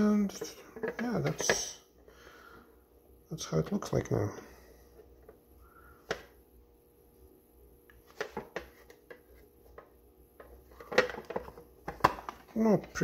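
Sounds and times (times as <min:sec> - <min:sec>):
plastic box clicks and knocks: 0:00.3 - 0:01.8, 0:08.1 - 0:12.6.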